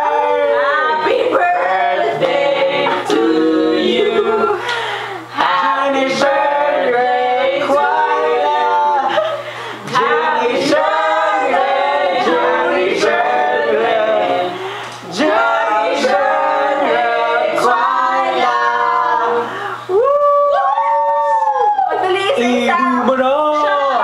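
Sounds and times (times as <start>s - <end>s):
group singing unaccompanied: 0.0s - 19.8s.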